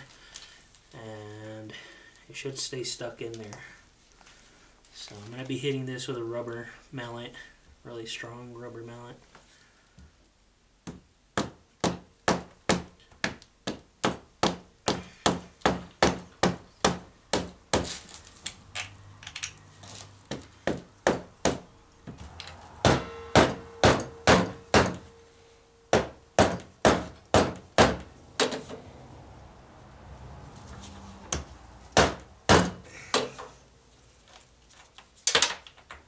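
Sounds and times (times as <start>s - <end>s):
rubber mallet striking brass: 22.6s - 28.0s.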